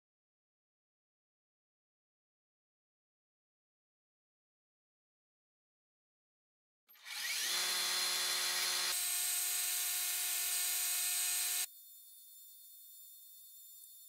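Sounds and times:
metal lathe motor whining: 0:06.9 - 0:11.7.

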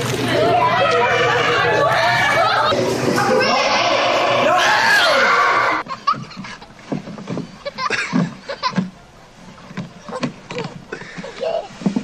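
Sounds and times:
splashing in indoor pool: 0:00.0 - 0:07.0
people shouting: 0:00.3 - 0:05.8.

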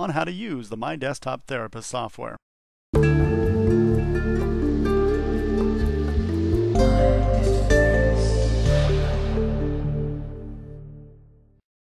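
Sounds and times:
soft sustained background music: 0:03.0 - 0:11.6.

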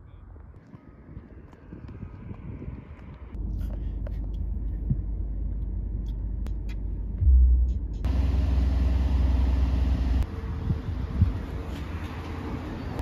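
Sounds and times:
car cabin road rumble: 0:03.3 - 0:12.0.

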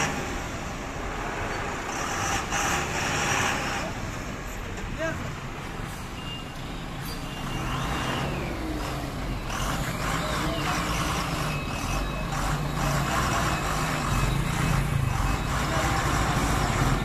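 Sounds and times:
truck diesel engine running: 0:07.9 - 0:17.0.

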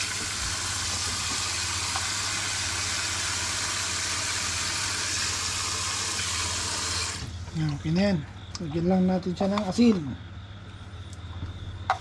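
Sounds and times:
tap water spraying into a steel bowl: 0:00.0 - 0:07.3.

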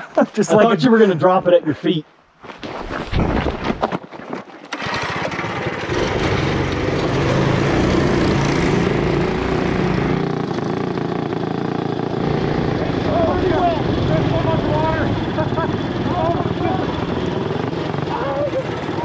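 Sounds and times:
mini bike engine running: 0:04.7 - 0:19.0.

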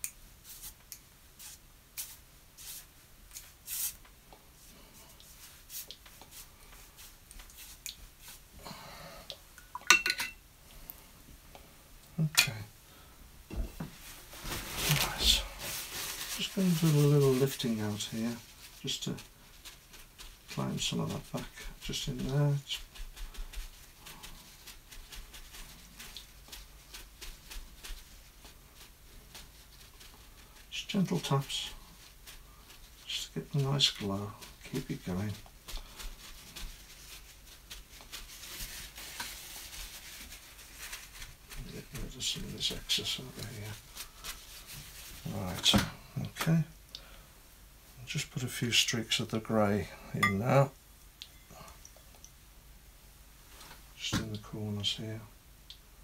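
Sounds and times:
brush swishing across paper: 0:00.4 - 0:08.5, 0:13.8 - 0:45.8
brush clinking against palette: 0:50.2 - 0:50.4.

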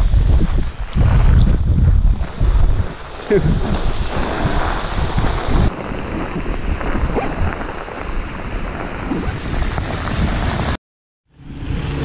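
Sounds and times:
wind rushing across microphone: 0:00.0 - 0:10.8
heavy rain on water and metal boat: 0:02.9 - 0:10.7.

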